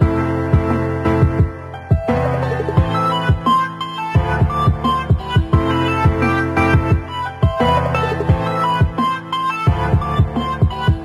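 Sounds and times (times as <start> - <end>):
kick drum beat: 0.0 - 2.2, 2.8 - 3.5, 4.2 - 9.0, 9.7 - 11.0.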